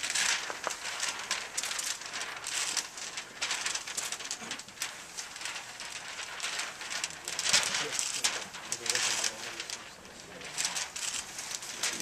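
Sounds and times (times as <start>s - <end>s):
people shuffling and rustling: 5.4s - 12.0s.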